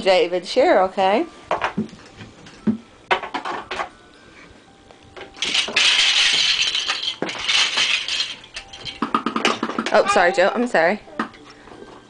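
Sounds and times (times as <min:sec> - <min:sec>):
plastic toy blocks clattering: 0:05.2 - 0:10.2.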